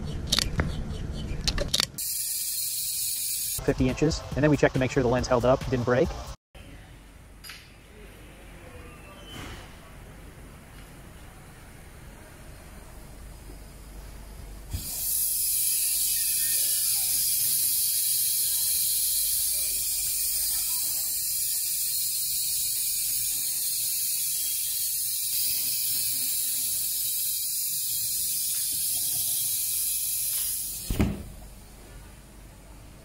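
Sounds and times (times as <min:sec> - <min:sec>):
steady high hiss of spray: 0:14.8 - 0:30.9.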